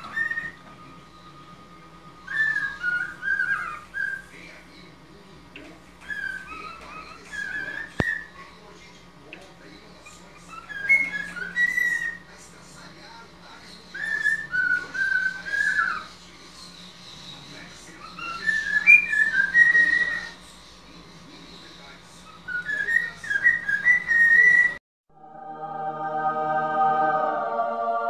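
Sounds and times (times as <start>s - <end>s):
cockatiel whistling a tune: 0.0s - 1.3s, 2.2s - 4.3s, 6.0s - 8.3s, 10.5s - 12.2s, 13.9s - 16.1s, 18.0s - 20.3s, 22.5s - 24.8s
soft music: 0.0s - 3.4s, 25.1s - 28.0s.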